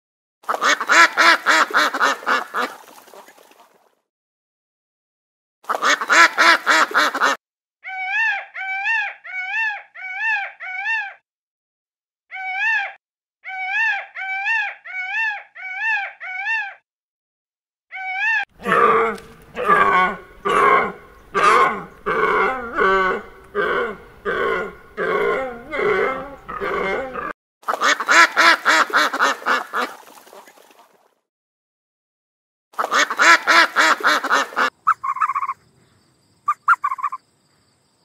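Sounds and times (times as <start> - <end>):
animal calls: 5.7 - 11.2, 12.3 - 16.8, 17.9 - 28.1, 32.8 - 35.6, 36.5 - 37.2.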